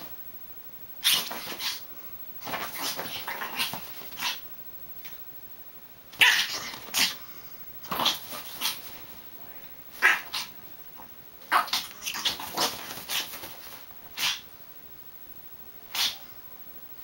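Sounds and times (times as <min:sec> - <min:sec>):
small dog yapping: 0:01.0 - 0:01.8, 0:02.4 - 0:04.4, 0:06.2 - 0:07.2, 0:07.9 - 0:09.0, 0:10.0 - 0:10.6, 0:11.5 - 0:14.5, 0:15.9 - 0:16.3
small dog growling: 0:01.0 - 0:04.4, 0:06.2 - 0:09.1, 0:09.9 - 0:14.5, 0:15.9 - 0:16.3.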